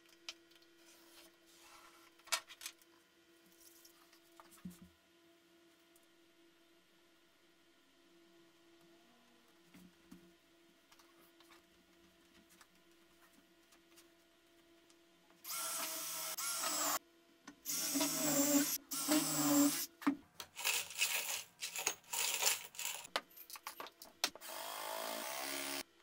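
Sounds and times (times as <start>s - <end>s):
impact driver spinning screws: 20.5s - 23.1s
metal screws rattling in glass jar: 20.6s - 23.8s.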